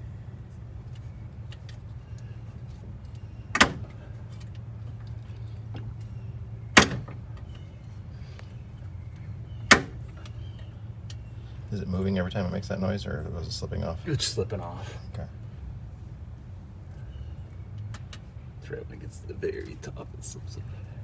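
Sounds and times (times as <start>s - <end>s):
steady low hum: 0.0s - 21.0s
pry bar clanking on metal: 9.6s - 10.0s.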